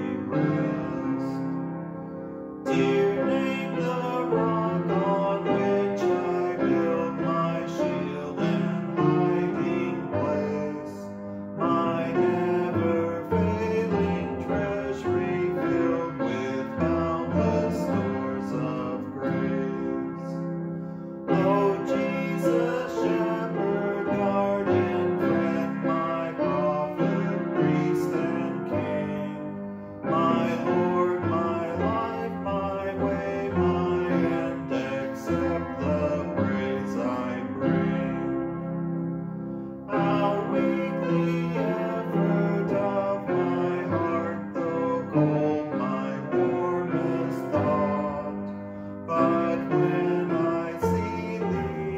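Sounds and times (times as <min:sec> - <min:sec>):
piano playing slow hymn: 0:00.0 - 0:51.9.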